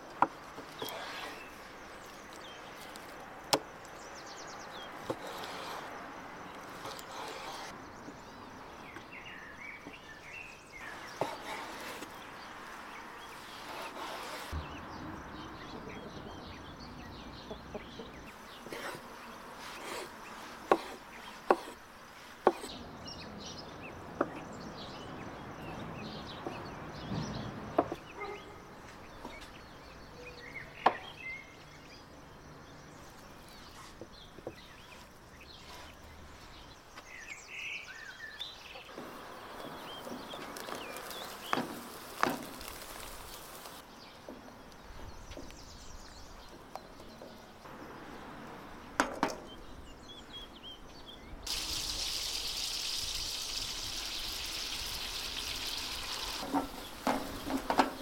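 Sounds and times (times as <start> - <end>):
birds chirping: 22.4 - 48.2, 49.4 - 58.0.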